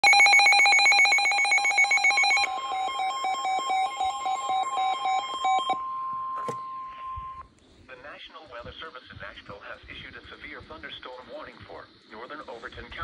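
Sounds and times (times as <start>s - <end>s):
rapid electronic beeping: 0.0s - 5.8s
steady high alarm tone: 0.0s - 7.4s.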